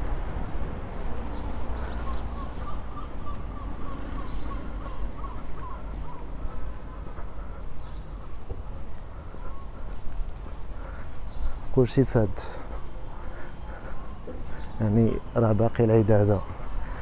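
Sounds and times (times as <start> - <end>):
small birds chirping: 0.8 - 17.0.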